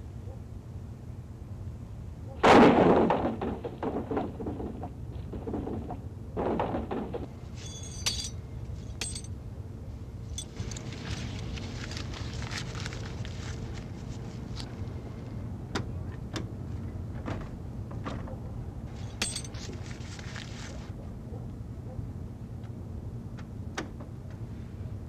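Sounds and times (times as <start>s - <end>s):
steel bars clinking: 7.6s - 9.3s, 10.3s - 10.9s, 19.0s - 19.7s.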